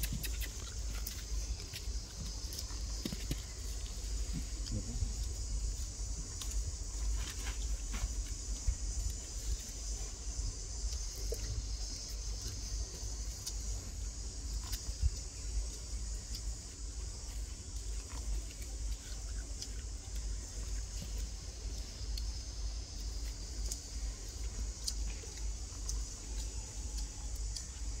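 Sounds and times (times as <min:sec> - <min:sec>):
low rumble on microphone: 0:00.0 - 0:19.1
steady high hiss: 0:00.0 - 0:28.0.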